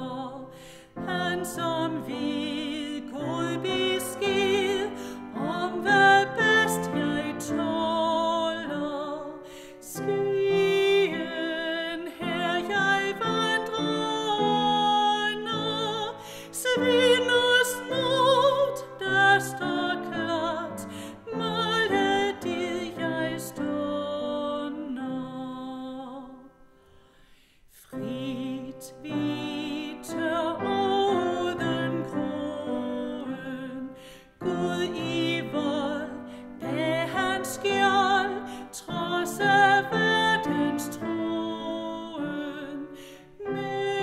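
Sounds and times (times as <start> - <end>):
woman singing a hymn: 0.0 - 26.5, 27.7 - 44.0
piano: 0.0 - 44.0.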